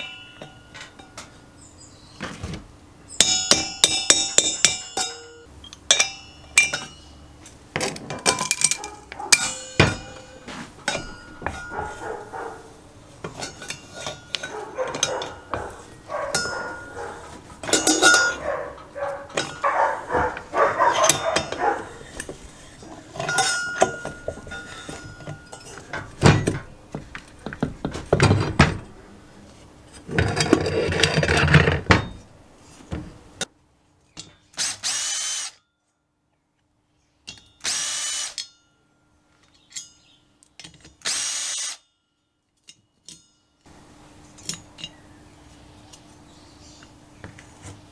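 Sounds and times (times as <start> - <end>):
cordless drill-driver bursts: 34.6 - 35.6, 37.6 - 38.4, 41.0 - 41.8.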